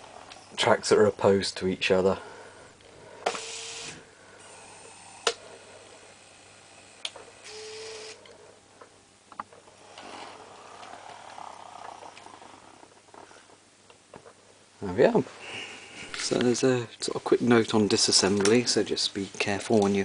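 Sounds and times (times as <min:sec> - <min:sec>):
model locomotive motor running: 0:03.3 - 0:08.2.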